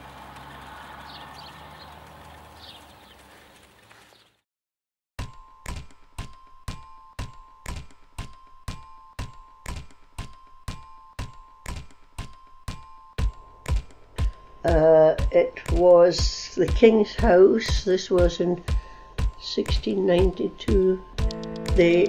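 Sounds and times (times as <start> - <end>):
outdoor background noise: 0.0 - 4.4
electronic music beat: 6.7 - 22.0.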